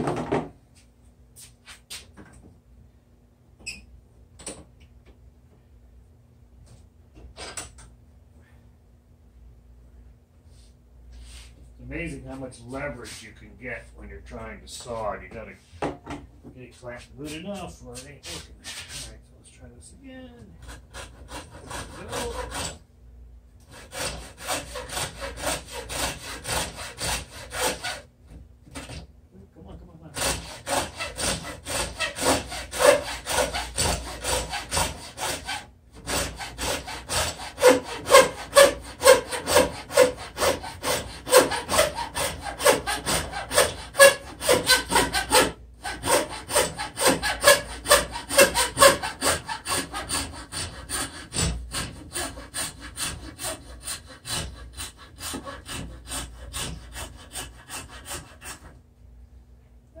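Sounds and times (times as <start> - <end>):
hacksaw cutting wood: 20.6 - 22.8, 23.7 - 28.1, 30.2 - 58.8.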